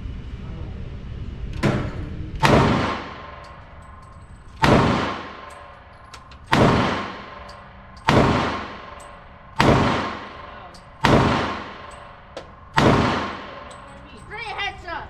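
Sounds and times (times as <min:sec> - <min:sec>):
pistol shots echoing: 0:02.4 - 0:03.6, 0:04.6 - 0:13.9.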